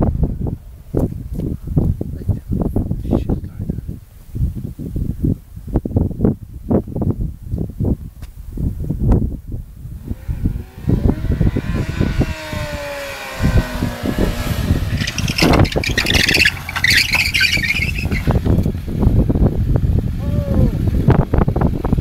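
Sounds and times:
motorcycle engine approaching and stopping: 0:09.7 - 0:22.0.

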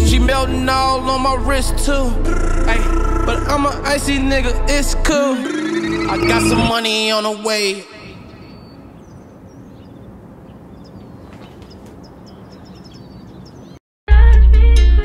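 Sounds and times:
loud music with deep bass: 0:00.0 - 0:06.7
high bird chirps: 0:05.4 - 0:06.8, 0:07.5 - 0:13.8.

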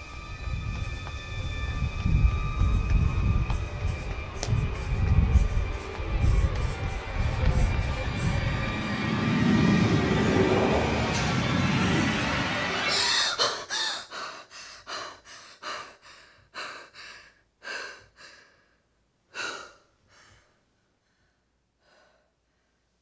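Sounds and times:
woman panting and gasping: 0:03.8 - 0:08.9, 0:12.9 - 0:22.4.

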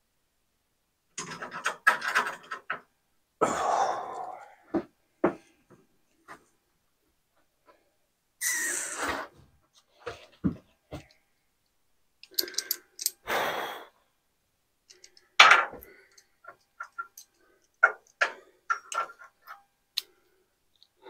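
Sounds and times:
metal clicks and knocks: 0:01.2 - 0:02.9.

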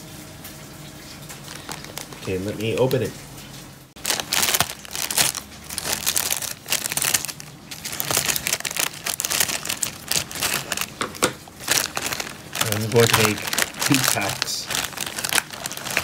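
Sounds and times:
plastic film crinkling: 0:01.3 - 0:03.2, 0:04.0 - 0:16.0
scissors cutting plastic: 0:04.1 - 0:16.0.

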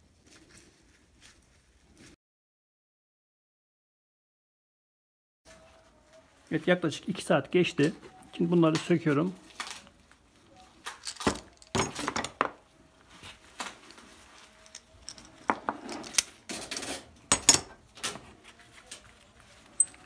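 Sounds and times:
wooden pieces knocking on bench: 0:11.2 - 0:12.6, 0:15.1 - 0:16.2
metal clamps clinking: 0:14.4 - 0:17.8, 0:19.7 - 0:20.0.

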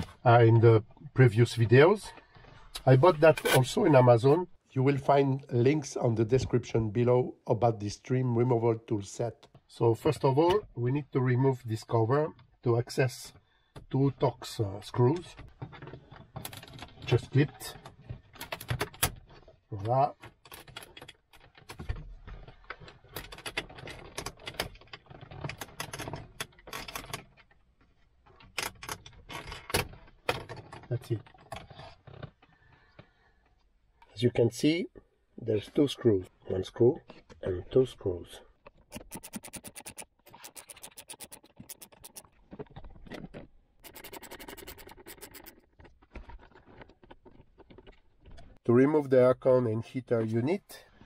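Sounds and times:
socket ratchet clicking rapidly: 0:38.9 - 0:42.2, 0:43.8 - 0:45.6.

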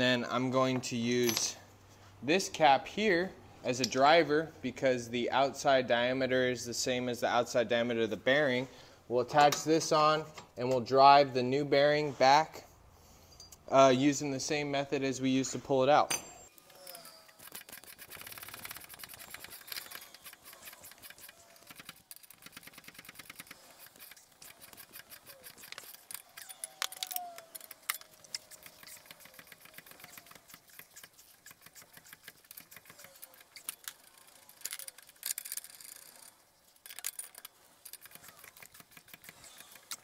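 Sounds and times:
ratcheting wrench clicking: 0:16.6 - 0:40.0.

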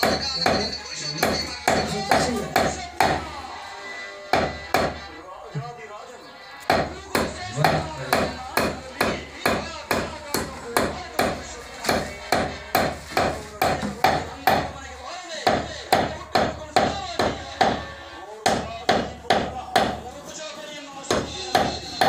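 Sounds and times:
hammer beating leather: 0:04.3 - 0:05.0, 0:06.7 - 0:14.8, 0:18.5 - 0:20.0, 0:21.1 - 0:22.0.

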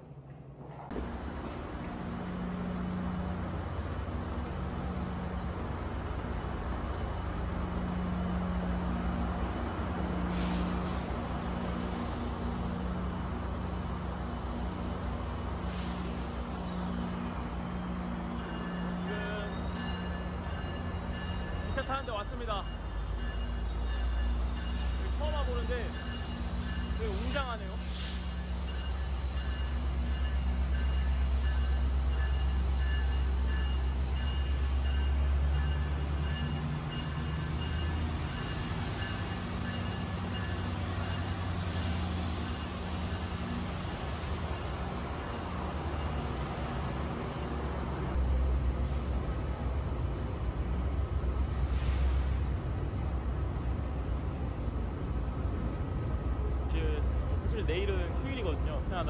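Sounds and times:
train engine idling: 0:00.0 - 0:59.0
sharp air hisses: 0:10.3 - 0:11.2, 0:27.1 - 0:28.7, 0:51.5 - 0:52.4.

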